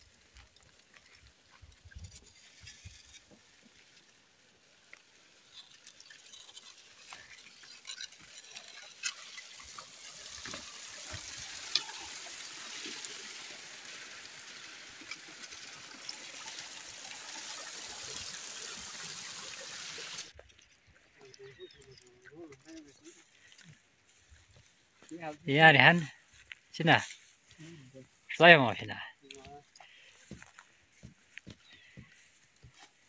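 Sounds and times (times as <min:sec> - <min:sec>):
dry grass rustling: 0:00.0 - 0:28.3, 0:29.4 - 0:33.0
footsteps on stony ground: 0:26.0 - 0:27.6, 0:29.3 - 0:33.0.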